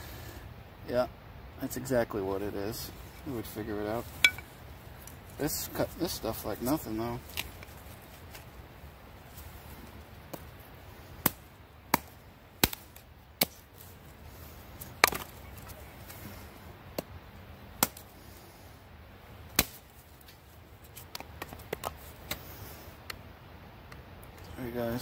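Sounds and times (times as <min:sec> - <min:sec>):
axe chopping wood: 0:11.2 - 0:13.6, 0:14.9 - 0:15.3, 0:17.8 - 0:18.1, 0:19.5 - 0:19.8.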